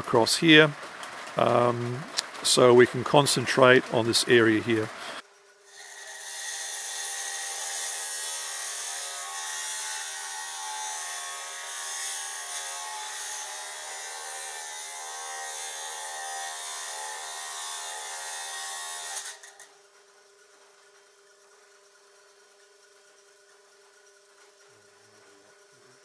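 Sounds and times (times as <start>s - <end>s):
saw blade grinding through stone: 5.7s - 19.7s.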